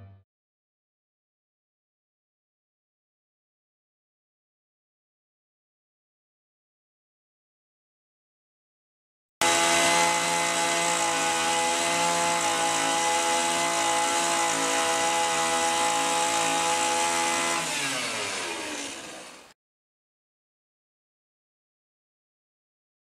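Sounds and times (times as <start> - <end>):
electric drill running: 9.4 - 19.6.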